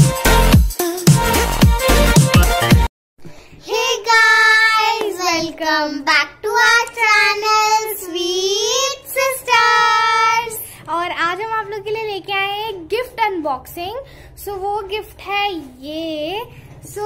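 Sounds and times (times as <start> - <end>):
girls singing: 3.6 - 5.9.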